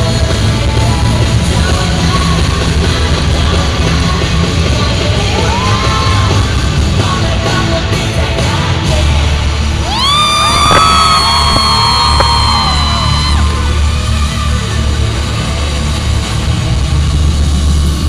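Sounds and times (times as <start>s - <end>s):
loud live music with heavy bass: 0.0s - 18.0s
fans screaming: 5.2s - 6.5s, 9.8s - 15.4s.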